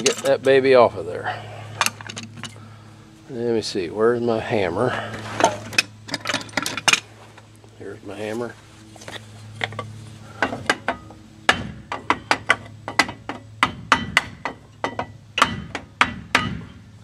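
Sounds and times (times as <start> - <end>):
hammer knocking on brake drum: 10.5 - 16.8.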